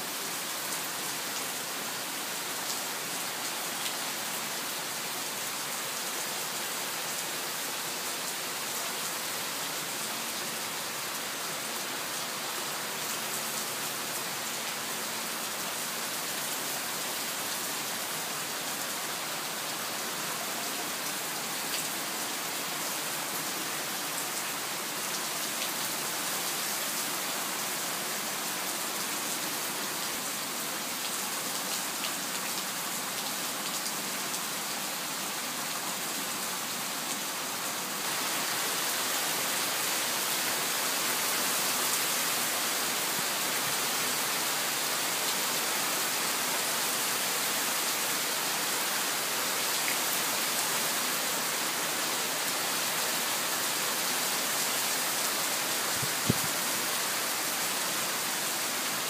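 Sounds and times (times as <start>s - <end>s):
heavy rain on lawn: 0.0s - 59.0s.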